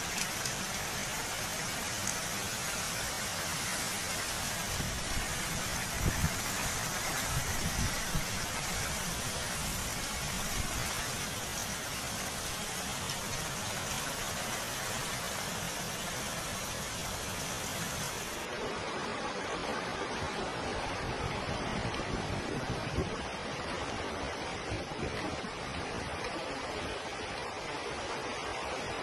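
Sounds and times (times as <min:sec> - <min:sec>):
floodwater rushing: 0:00.0 - 0:29.0
heavy rain: 0:00.0 - 0:29.0.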